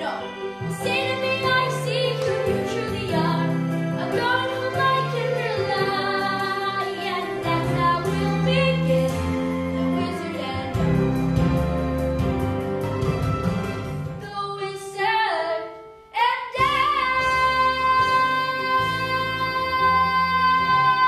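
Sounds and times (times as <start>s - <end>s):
girl singing: 0.0s - 9.3s, 14.2s - 21.0s
musical accompaniment: 0.0s - 21.0s.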